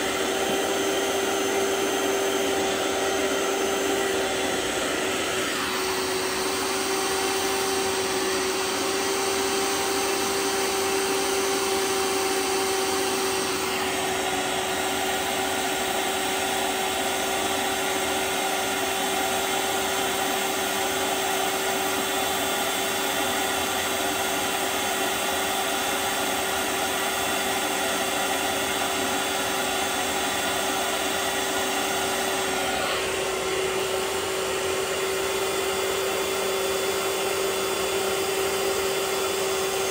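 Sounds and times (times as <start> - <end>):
carpet cleaner suction motor: 0.0 - 39.9.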